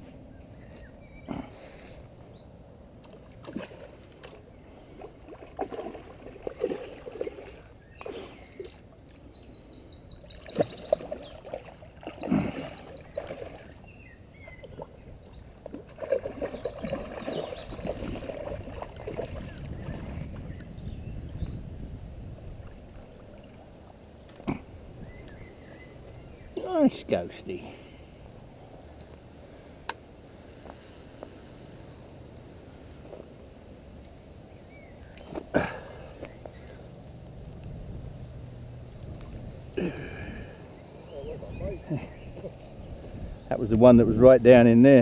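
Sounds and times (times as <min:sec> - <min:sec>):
fish splashing at water surface: 0:10.4 - 0:13.8.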